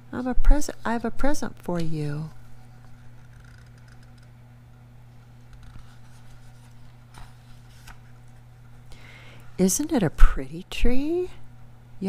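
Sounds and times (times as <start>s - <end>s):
steady low hum: 0.0s - 12.0s
book pages rustling: 5.2s - 8.8s.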